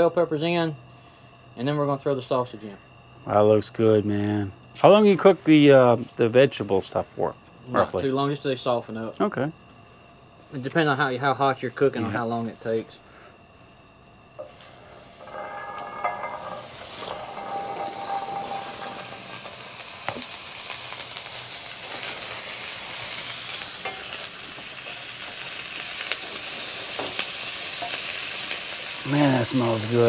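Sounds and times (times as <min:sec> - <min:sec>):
spatula scraping a pan: 0:14.4 - 0:20.3
food sizzling in a pan: 0:14.4 - 0:30.0.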